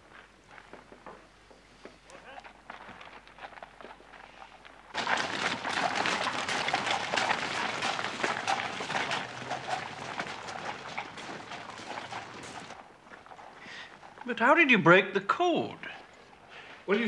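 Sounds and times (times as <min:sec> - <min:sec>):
hooves and wheels on gravel: 0:00.0 - 0:17.0.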